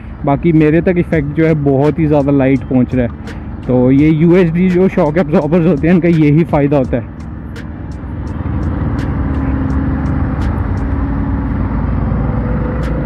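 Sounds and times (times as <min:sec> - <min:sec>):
motorcycle engine running: 0:00.6 - 0:13.0.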